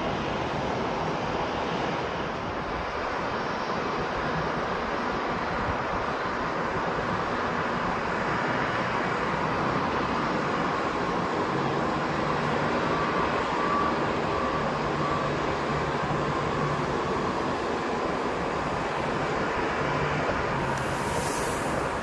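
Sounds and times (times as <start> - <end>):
faint engine whine: 0.0 - 22.0
jet engines rushing: 0.0 - 22.0.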